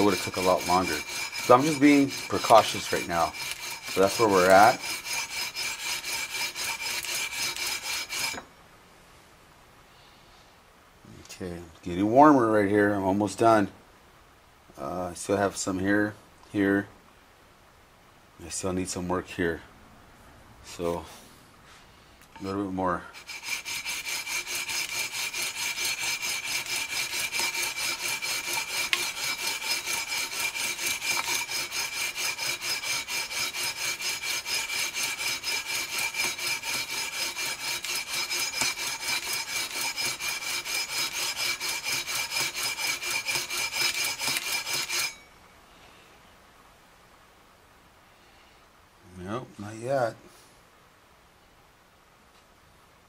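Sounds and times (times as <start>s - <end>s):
sandpaper rasping on metal frets: 0.0s - 8.4s, 22.4s - 45.2s.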